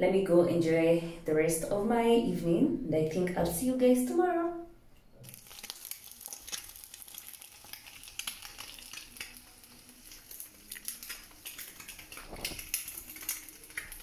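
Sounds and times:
egg sizzling in a pan: 5.2s - 14.0s.

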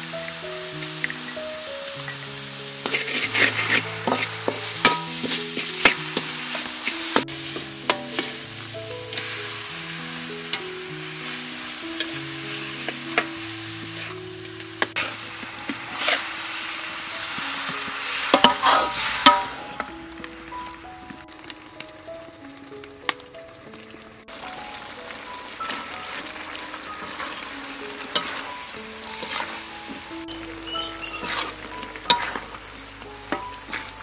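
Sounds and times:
ribs sizzling in a wok: 0.0s - 34.0s
soft background music: 0.0s - 34.0s
metal ladle scraping a pan: 2.0s - 9.7s, 15.9s - 16.5s, 17.2s - 19.8s, 26.9s - 32.6s.

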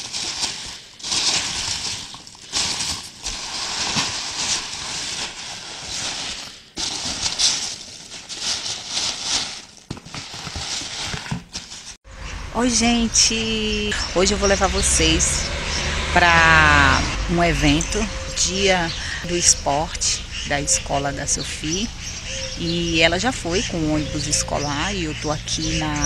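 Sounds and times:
foam packing peanuts rustling: 0.0s - 12.0s.

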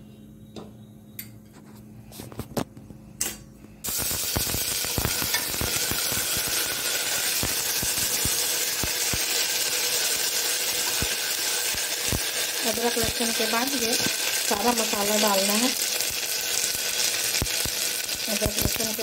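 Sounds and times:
paste sizzling in hot oil: 3.8s - 19.0s.

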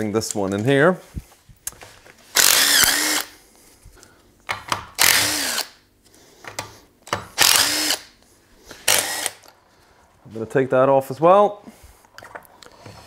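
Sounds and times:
cordless drill spinning: 2.3s - 3.3s, 5.0s - 5.8s, 7.4s - 8.1s, 8.7s - 9.5s.

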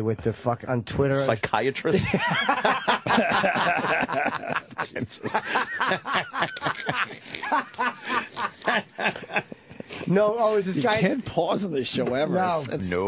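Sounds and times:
men laughing: 1.9s - 10.1s.

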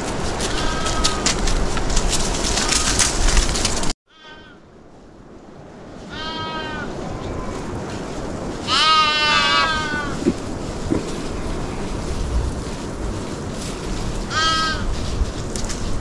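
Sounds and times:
steady background noise: 0.0s - 16.0s
sheep bleating: 0.5s - 1.3s, 4.1s - 4.6s, 6.1s - 7.6s, 8.7s - 10.3s, 14.3s - 14.8s.

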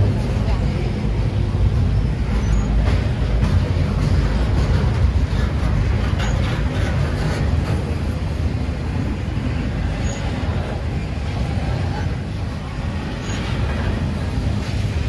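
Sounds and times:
train low rumble: 0.0s - 15.0s.

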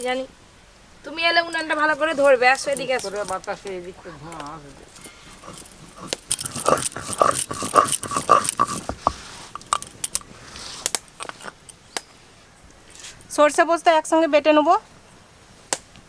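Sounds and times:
clicks and scrapes on stone: 4.9s - 11.8s
stone roller grinding paste: 5.3s - 10.1s.

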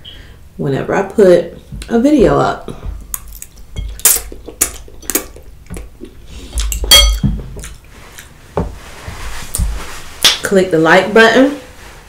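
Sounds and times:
fork clinking against glass bowl: 3.2s - 4.3s, 6.6s - 7.8s.

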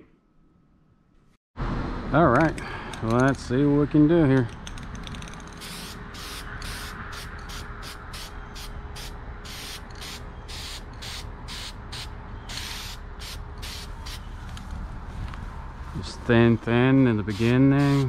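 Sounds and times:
spray paint hissing: 5.5s - 14.3s, 17.2s - 18.0s.

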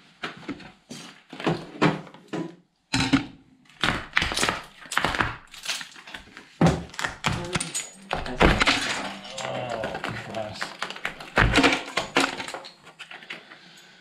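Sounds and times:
plastic trunking ripped off wall: 3.8s - 13.2s.

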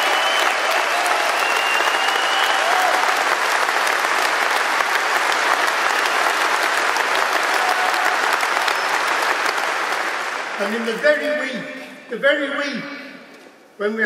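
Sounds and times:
large crowd applauding: 0.0s - 11.5s.

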